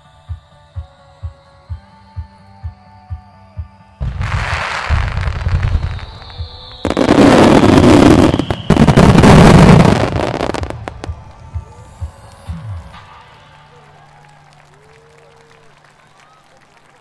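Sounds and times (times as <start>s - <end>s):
fireworks launches and bursts: 4.0s - 13.2s.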